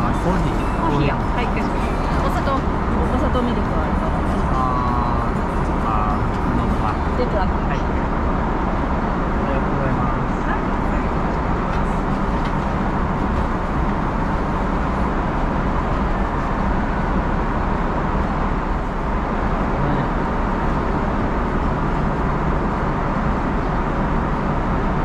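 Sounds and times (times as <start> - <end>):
airplane cabin noise: 0.0 - 25.0.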